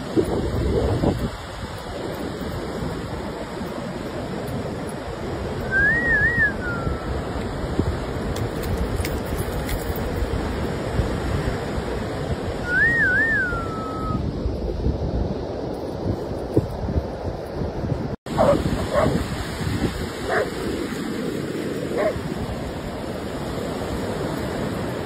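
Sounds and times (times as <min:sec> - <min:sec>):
wind buffeting microphone: 0:00.0 - 0:25.0
rising and falling whistle: 0:05.6 - 0:07.1, 0:12.6 - 0:14.2
ocean surf breaking: 0:18.3 - 0:25.0.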